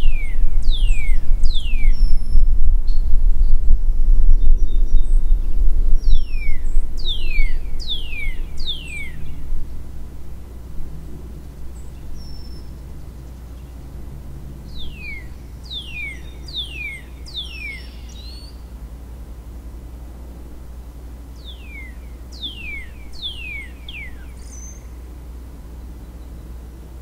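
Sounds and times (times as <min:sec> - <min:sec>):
songbird whistling: 0:00.0 - 0:03.6, 0:04.3 - 0:09.4, 0:11.8 - 0:12.8, 0:14.7 - 0:18.6, 0:21.4 - 0:25.0
low rumble: 0:00.0 - 0:16.6.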